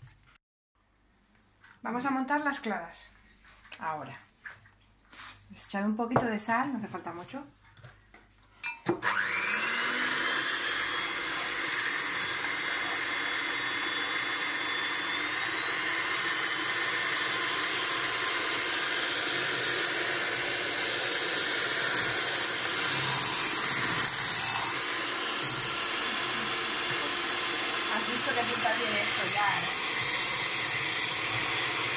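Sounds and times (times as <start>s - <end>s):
electric hand mixer whining: 8.9s - 31.9s.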